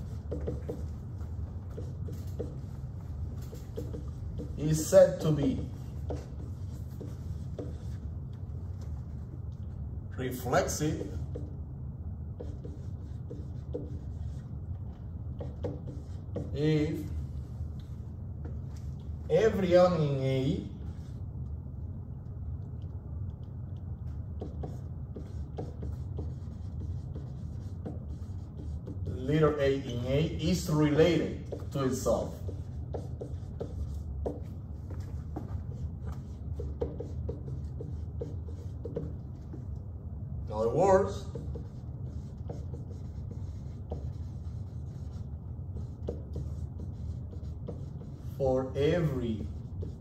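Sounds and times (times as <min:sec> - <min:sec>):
marker writing on whiteboard: 0:00.0 - 0:21.3, 0:22.6 - 0:50.0
low room hum: 0:00.0 - 0:50.0.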